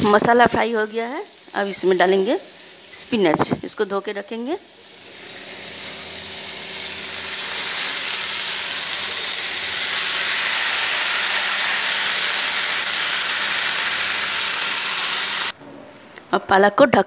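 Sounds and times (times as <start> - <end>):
leaves sizzling in hot oil: 0.0 - 15.5.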